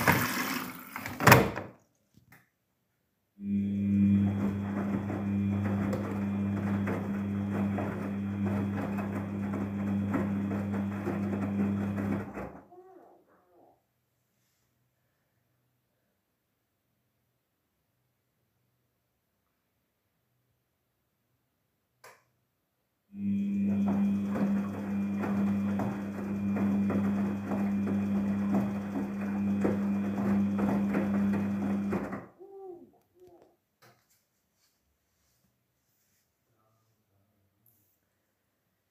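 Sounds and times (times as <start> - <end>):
washing machine motor hum: 3.4 - 12.7, 23.2 - 32.3.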